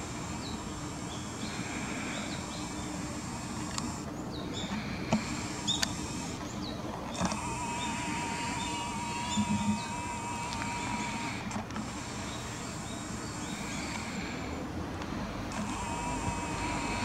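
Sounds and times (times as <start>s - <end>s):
faint high hum: 0.0s - 17.0s.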